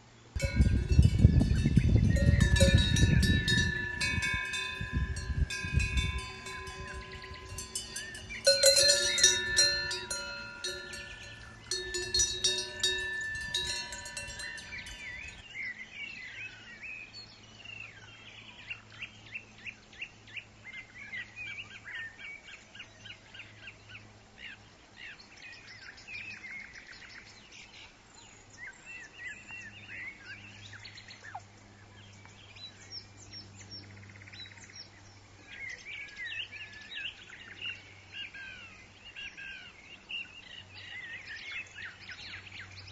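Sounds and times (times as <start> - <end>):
sharp metal clanks: 0.4 - 15.2
low steady hum: 0.4 - 15.4
metallic bell-like chiming: 0.4 - 15.4
small birds chirping: 0.4 - 15.4.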